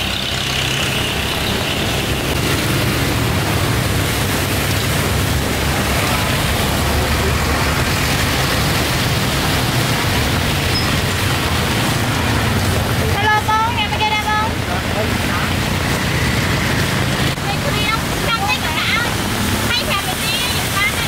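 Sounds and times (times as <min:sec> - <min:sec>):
road traffic passing: 0:00.0 - 0:21.0.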